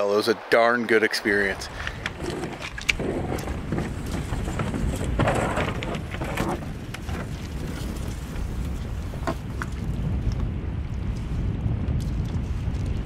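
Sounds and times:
wind: 0.0s - 13.0s
canoe scraping over gravel: 1.6s - 9.8s.

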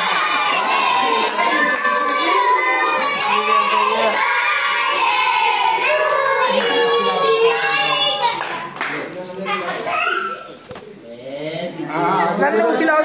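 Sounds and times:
children singing: 0.0s - 8.4s.

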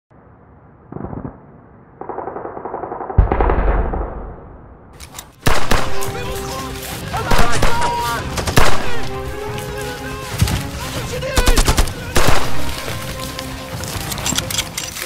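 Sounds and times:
gunfire shots and bursts: 0.9s - 6.4s, 7.2s - 9.2s, 11.4s - 13.1s.

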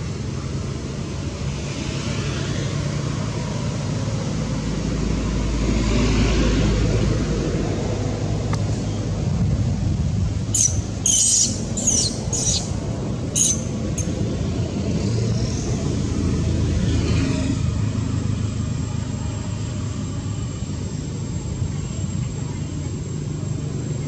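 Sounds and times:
monkey squealing: 10.5s - 14.1s.

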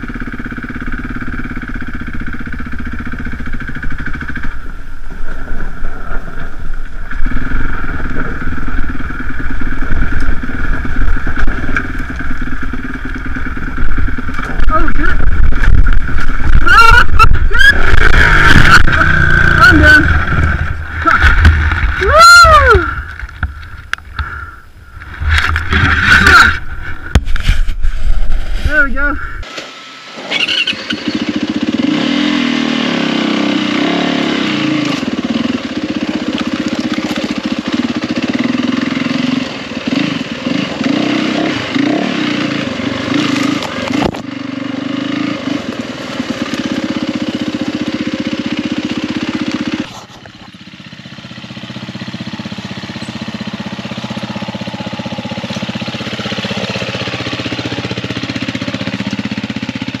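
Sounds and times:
second dirt bike engine climbing: 0.0s - 60.0s
dirt bike engine under load: 0.2s - 31.9s, 43.1s - 44.5s.

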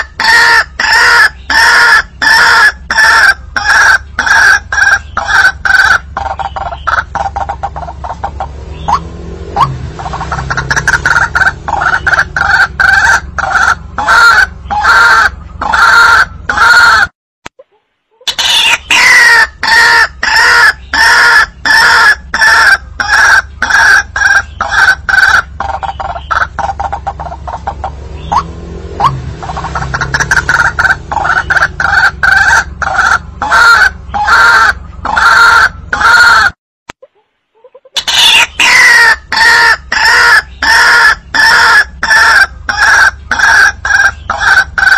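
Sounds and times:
waterhen calling: 0.0s - 17.0s, 18.2s - 36.5s, 37.6s - 44.9s.

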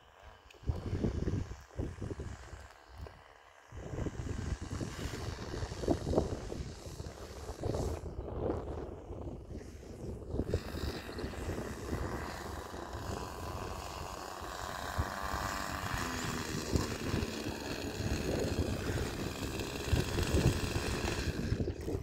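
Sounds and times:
model airplane engine buzzing: 0.0s - 22.0s
wind buffeting microphone: 0.6s - 2.6s, 3.6s - 22.0s.

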